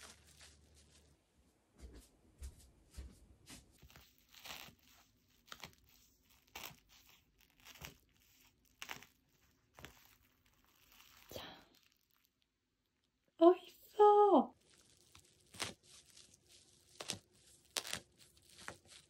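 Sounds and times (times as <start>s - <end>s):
wrapping crinkling and tearing: 0.0s - 1.2s, 3.8s - 13.2s, 14.5s - 19.0s.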